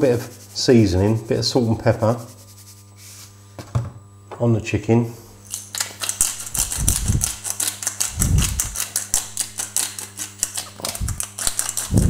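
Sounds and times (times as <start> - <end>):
pepper mill grinding clicks: 5.5 - 12.0.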